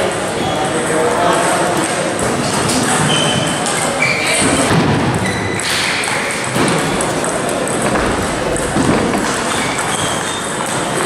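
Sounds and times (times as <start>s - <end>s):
din of a large hall: 0.0s - 11.0s
table tennis ball pinging: 6.0s - 11.0s.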